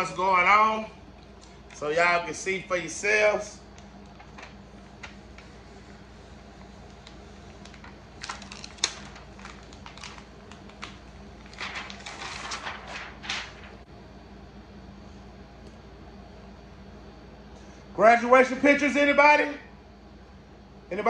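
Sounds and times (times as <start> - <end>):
plastic film crinkling: 4.0 - 5.8, 6.6 - 13.8.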